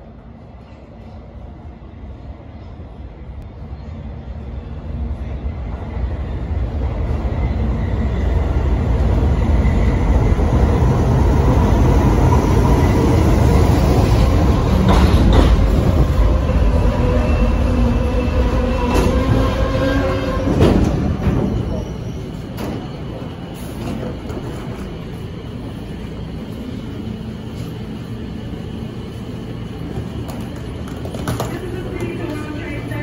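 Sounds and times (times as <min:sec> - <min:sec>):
subway train rumbling on rails: 0:00.0 - 0:33.0.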